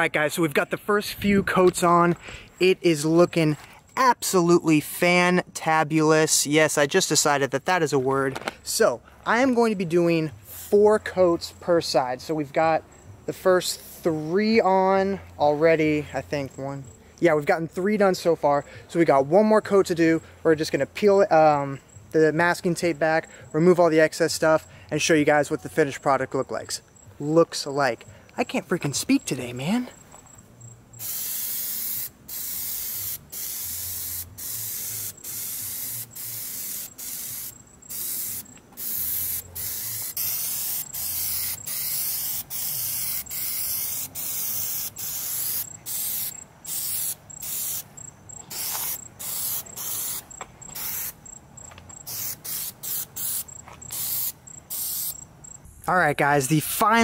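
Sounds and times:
aerosol spray can hissing: 31.0s - 51.2s, 52.0s - 55.2s.

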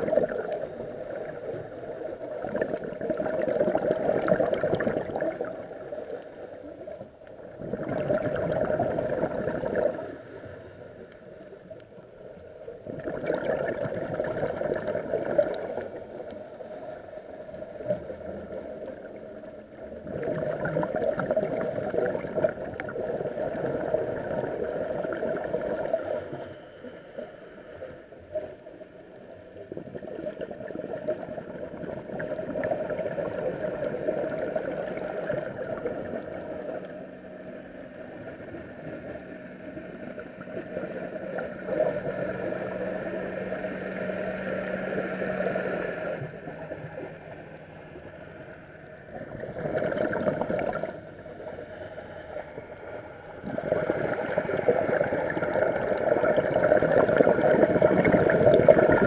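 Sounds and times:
exhaled bubbles rushing: 0.0s - 10.9s, 12.8s - 16.7s, 19.8s - 26.4s, 29.5s - 37.0s, 37.7s - 51.5s, 52.5s - 59.0s.

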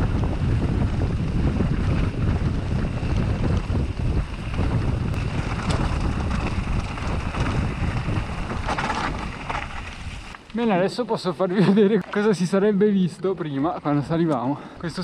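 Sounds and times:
wind noise on microphone: 0.0s - 10.4s
tyres rumbling over gravel: 0.0s - 12.6s.

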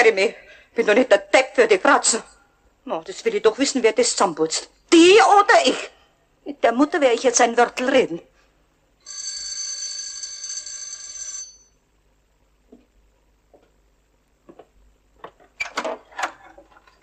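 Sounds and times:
electric doorbell ringing: 9.1s - 11.8s
faint clicks and knocks: 14.4s - 17.0s.

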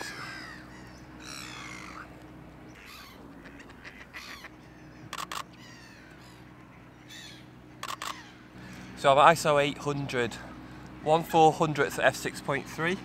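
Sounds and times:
camera shutter clicks: 5.1s - 5.5s, 7.8s - 8.2s.

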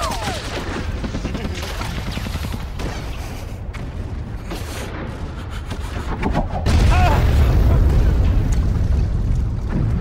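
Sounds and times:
rifle and machine-gun shots: 0.0s - 3.3s
low rumble of explosions: 0.2s - 10.0s.

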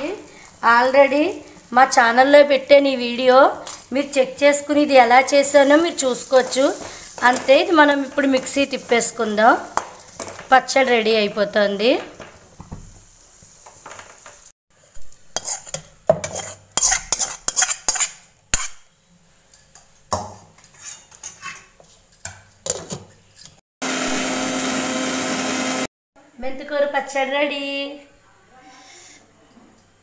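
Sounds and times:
metal spoon scraping and clinking: 3.2s - 4.8s, 5.4s - 11.0s, 15.4s - 18.8s, 20.6s - 23.6s
mixer grinder running: 23.8s - 25.9s.

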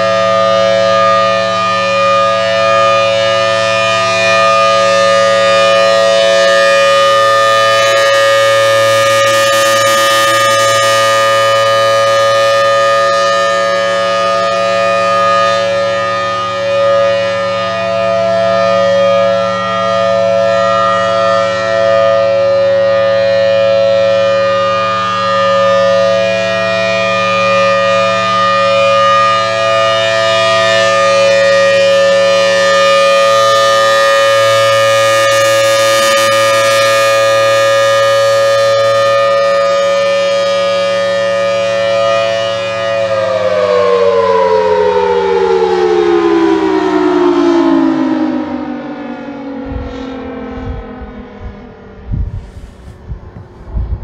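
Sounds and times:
rotating warning siren wailing: 0.0s - 54.0s.

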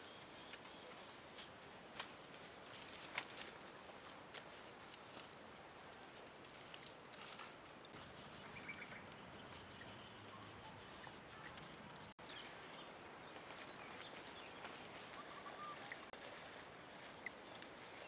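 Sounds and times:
bird chirping: 7.8s - 16.1s.

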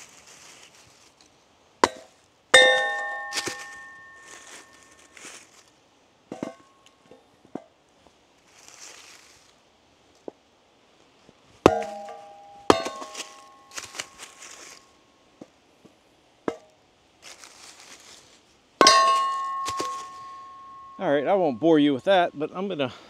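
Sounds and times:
maul striking metal splitter: 2.6s - 4.3s, 11.7s - 13.6s, 18.8s - 21.0s.

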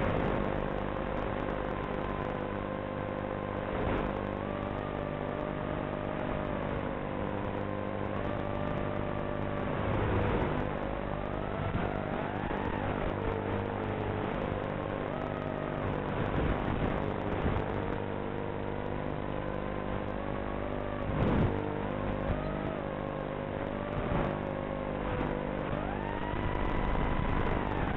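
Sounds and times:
drone motors whining: 3.9s - 18.8s, 20.6s - 27.9s.

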